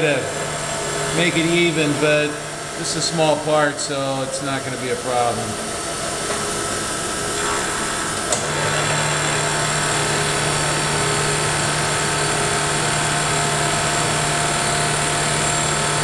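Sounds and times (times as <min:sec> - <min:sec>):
milling machine cutting metal: 0:00.0 - 0:16.0.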